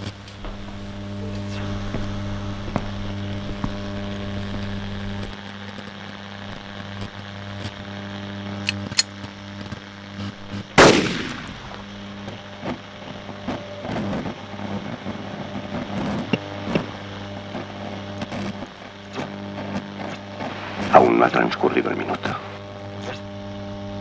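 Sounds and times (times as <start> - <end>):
steady low hum: 0.0 - 24.0
loud echoing gunshot: 10.8 - 11.9.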